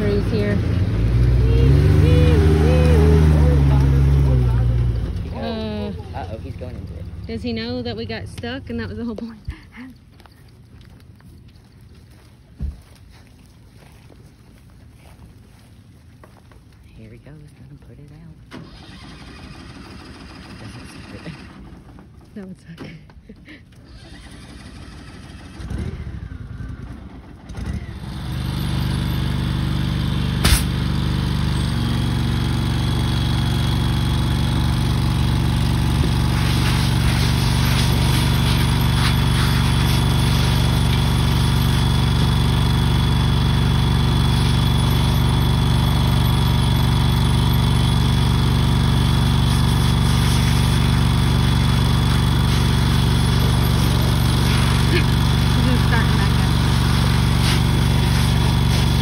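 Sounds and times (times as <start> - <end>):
engine running: 0.0 - 59.0
sharp crack: 30.3 - 31.0.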